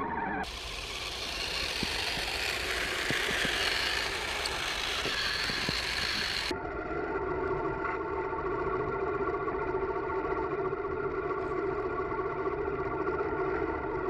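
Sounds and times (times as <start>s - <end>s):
steady motor whine: 0.4s - 6.5s
toy vehicle motor whirring: 0.4s - 6.5s.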